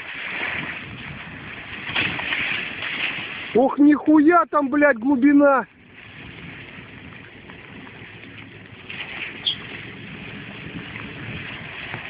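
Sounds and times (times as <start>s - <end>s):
water churning: 0.0s - 12.0s
short high squeak: 9.4s - 9.7s.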